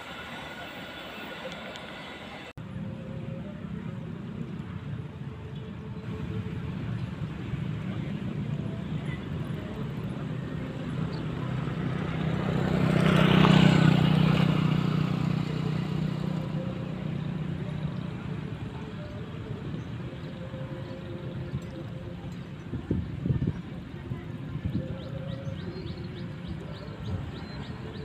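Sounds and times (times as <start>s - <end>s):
motorcycle riding past: 10.8s - 18.8s.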